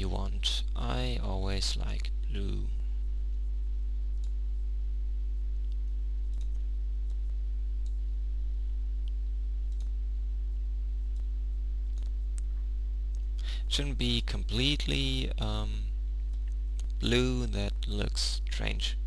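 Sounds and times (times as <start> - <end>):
low electrical hum: 0.0 - 19.0
computer mouse clicks: 5.6 - 8.0, 9.0 - 10.0.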